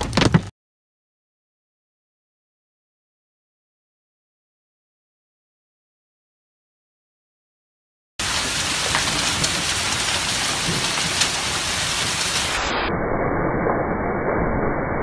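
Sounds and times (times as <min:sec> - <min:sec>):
hailstones striking: 0:00.0 - 0:00.5, 0:08.2 - 0:12.7
heavy rain pelting down: 0:08.2 - 0:12.9.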